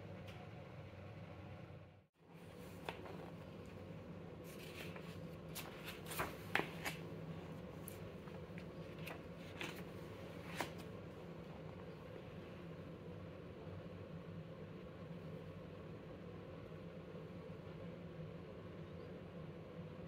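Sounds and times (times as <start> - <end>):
faint low hum: 0.0 - 20.0
paper pages rustling: 2.4 - 11.0.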